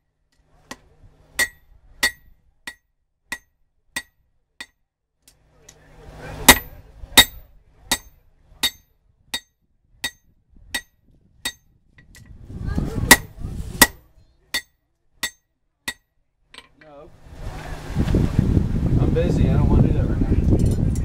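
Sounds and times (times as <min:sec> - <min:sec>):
hammer striking metal on anvil: 0:00.7 - 0:04.8, 0:06.4 - 0:12.3, 0:13.1 - 0:16.7
low rushing noise: 0:17.1 - 0:20.7.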